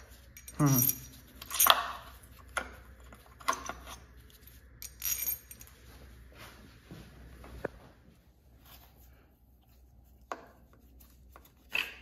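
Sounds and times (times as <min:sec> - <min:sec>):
metal tools clinking: 0:00.0 - 0:02.2, 0:03.2 - 0:05.8.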